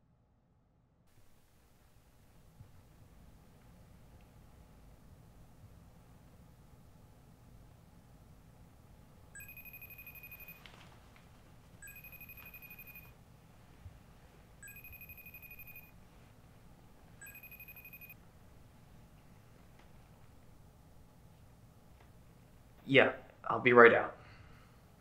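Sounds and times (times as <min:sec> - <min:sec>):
phone ringing: 0:09.4 - 0:10.8, 0:11.8 - 0:13.2, 0:14.6 - 0:16.0, 0:17.2 - 0:18.2.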